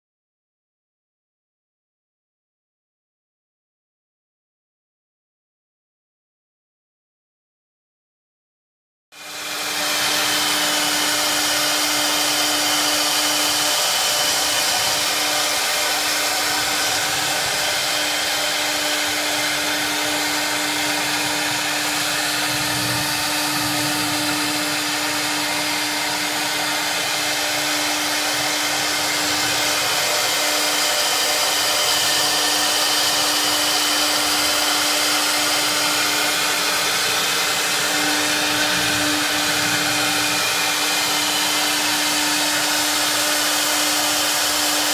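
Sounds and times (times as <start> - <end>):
router spindle whine: 9.2 - 44.9.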